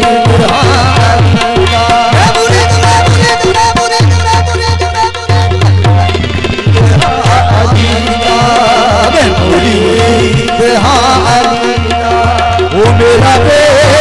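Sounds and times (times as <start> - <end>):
wavering melody: 0.0 - 13.7
tabla playing: 0.0 - 14.0.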